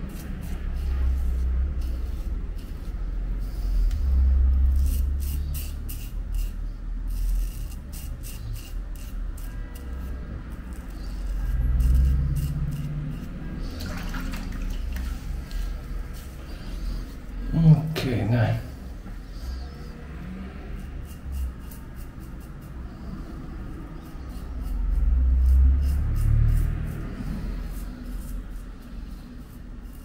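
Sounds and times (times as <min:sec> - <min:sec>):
razor scraping stubble: 0:00.0 - 0:13.8, 0:19.3 - 0:30.0.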